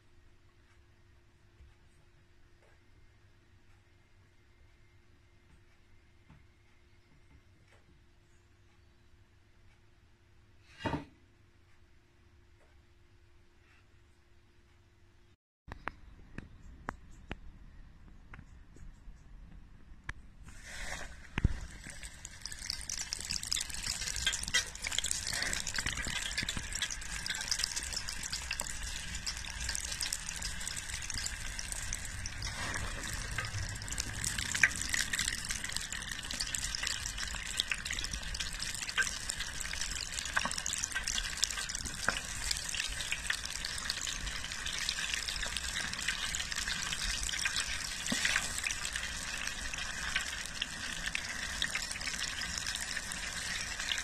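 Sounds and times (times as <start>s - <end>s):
oil bubbling and sizzling: 20.5s - 54.0s.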